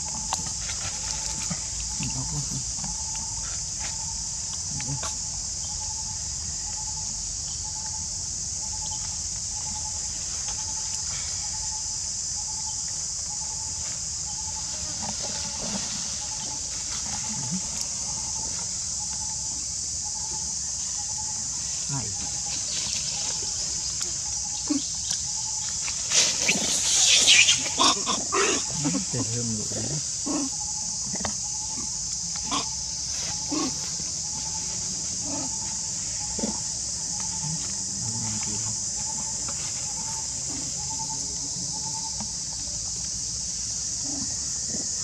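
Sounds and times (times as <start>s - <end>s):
insects droning: 0.0s - 45.0s
steady high hiss: 4.4s - 45.0s
monkey squeals and grunts: 26.3s - 29.2s.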